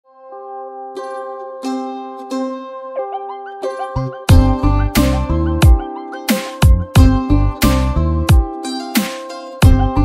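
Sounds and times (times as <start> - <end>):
background music with deep kicks: 4.3 - 5.9, 6.5 - 8.5, 9.6 - 10.0.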